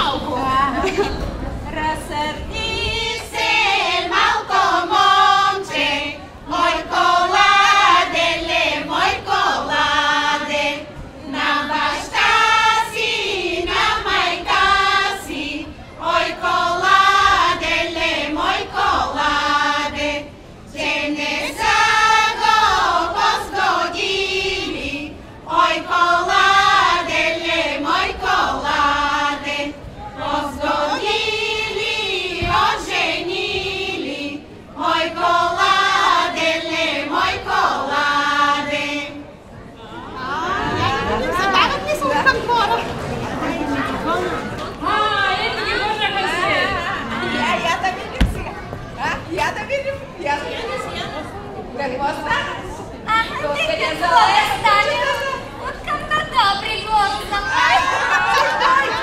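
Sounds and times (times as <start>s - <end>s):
women's choir singing folk song: 1.7s - 48.6s.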